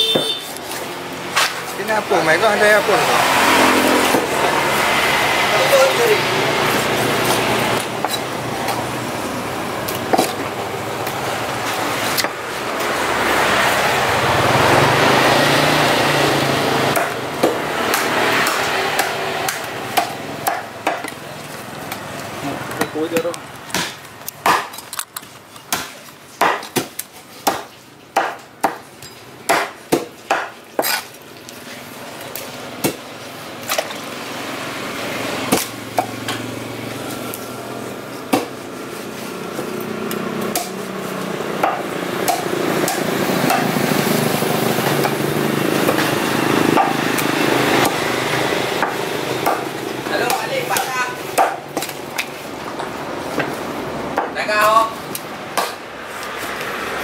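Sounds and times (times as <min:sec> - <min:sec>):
background noise: 0:00.0 - 0:57.0
knife striking chopping block: 0:22.8 - 0:24.8, 0:25.7 - 0:28.8.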